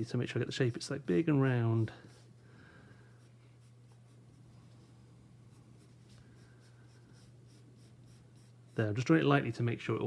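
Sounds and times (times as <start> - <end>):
pencil scratching on paper: 1.9 - 2.4, 3.1 - 4.9, 5.5 - 9.0.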